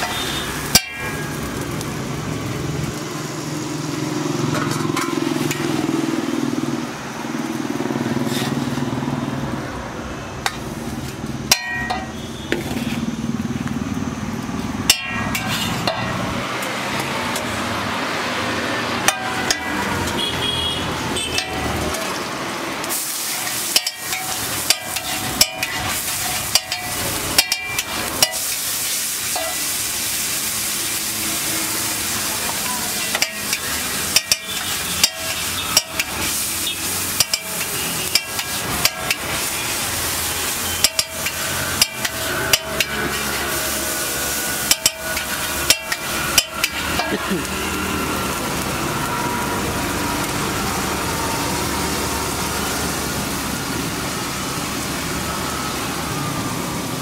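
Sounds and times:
metal spatula clacking on griddle: 0.0 - 1.4, 11.5 - 12.2, 14.8 - 16.2, 19.0 - 19.8, 21.3 - 22.1, 23.3 - 28.6, 29.3 - 29.6, 32.6 - 39.6, 40.7 - 43.5, 44.6 - 47.4
onions and tomatoes sizzling in oil: 0.0 - 57.0.

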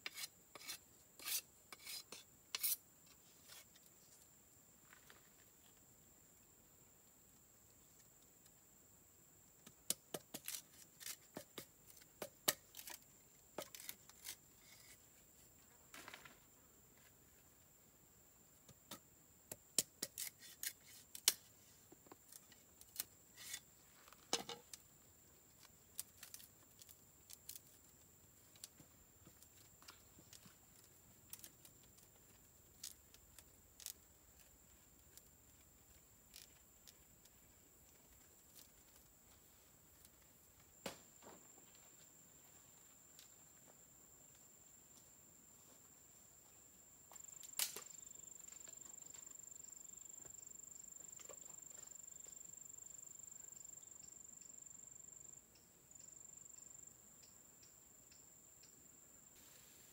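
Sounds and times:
bamboo tearing: 10.4 - 13.0, 13.6 - 15.0, 20.0 - 21.5, 22.3 - 23.6
bamboo cracking and snapping: 47.4 - 48.0.

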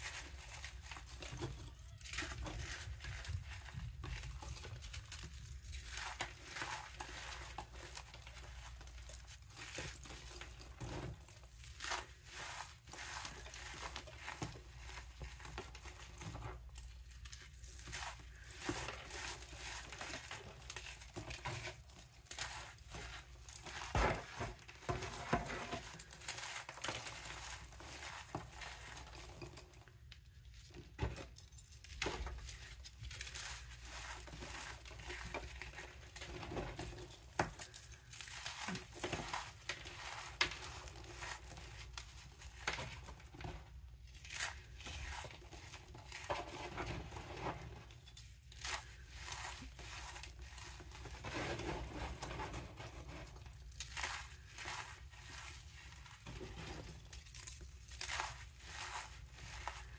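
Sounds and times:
hands crushing powdery lumps: 0.0 - 59.9.

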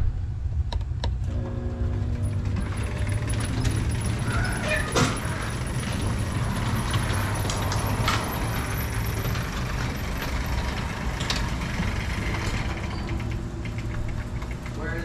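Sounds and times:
garage door motor hum: 0.0 - 15.0.

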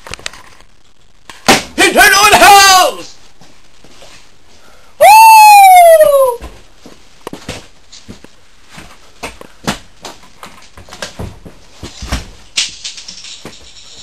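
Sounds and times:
people moving about a room: 3.0 - 4.8, 6.2 - 14.0.

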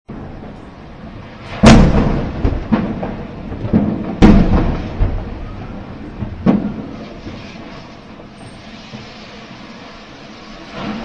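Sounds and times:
distant explosion booms: 0.1 - 8.4
smaller bangs: 0.1 - 8.4.

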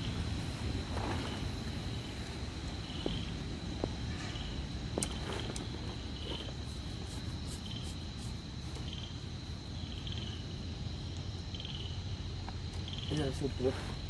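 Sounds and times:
insect high trill: 4.0 - 14.0
insect pulsed chirps: 4.3 - 14.0.

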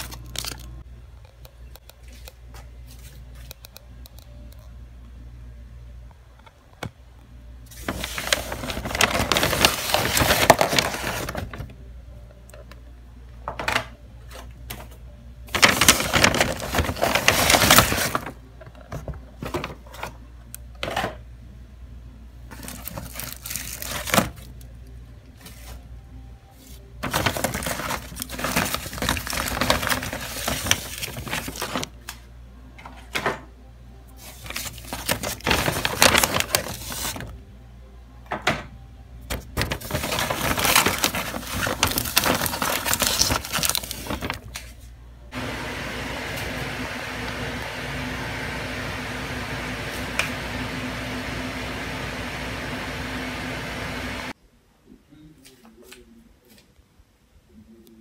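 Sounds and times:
paper bag rustling: 7.7 - 11.7, 15.5 - 20.1, 22.5 - 24.5, 26.6 - 32.0, 34.2 - 37.4, 39.3 - 45.6.

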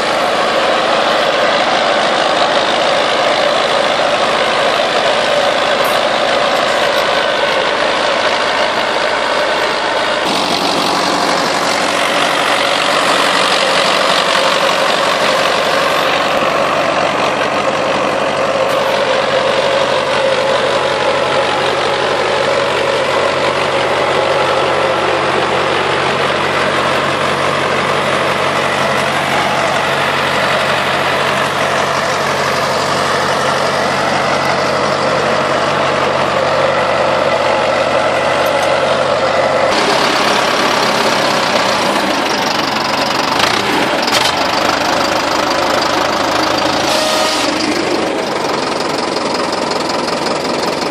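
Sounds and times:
tractor engine running under load: 0.0 - 50.9.

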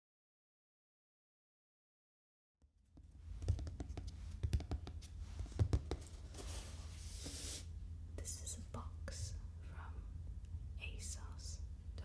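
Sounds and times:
fingernails tapping on cardboard: 3.0 - 6.2.

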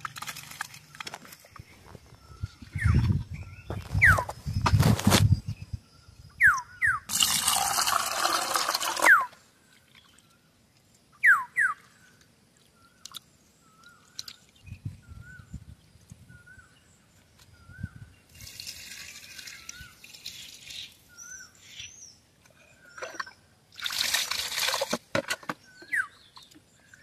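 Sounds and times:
water pouring into steel bowl: 7.1 - 9.3, 23.8 - 25.0
water splashing and dripping: 12.2 - 14.7, 18.4 - 20.9, 23.0 - 25.4.

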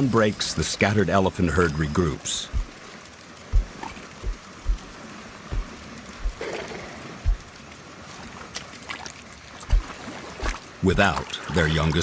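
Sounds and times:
steady outdoor hiss: 0.0 - 12.0
low thuds: 2.5 - 6.4, 7.2 - 7.5, 9.7 - 10.0
water sloshing and splashing: 2.5 - 12.0.

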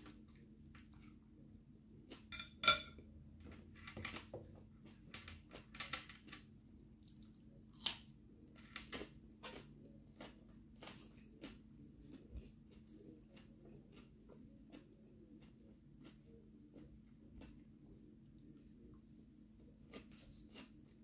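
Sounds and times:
chopsticks clinking on glass bowl: 2.3 - 3.0
crunchy chewing of cucumber: 4.8 - 8.2, 8.9 - 21.0.

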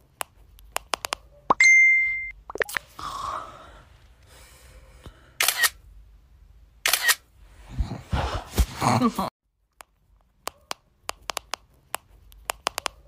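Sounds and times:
camera shutter clicks: 5.4 - 5.8, 6.8 - 7.2.

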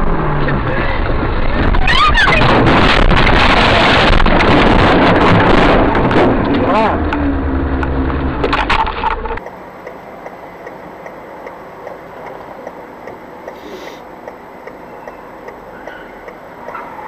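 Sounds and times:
loud abrupt sound: 0.0 - 9.4
car engine and road noise: 0.0 - 17.0
turn signal ticking: 9.4 - 17.0.

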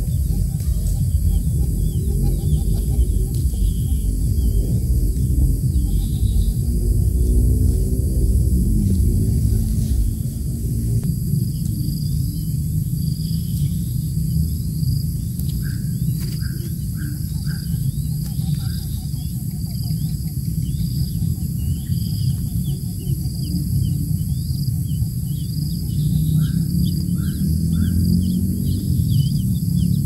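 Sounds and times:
bird peeps: 0.0 - 6.6, 15.5 - 28.4
rapid high chirping: 0.0 - 7.9, 11.8 - 30.0
low rumble: 0.0 - 30.0.

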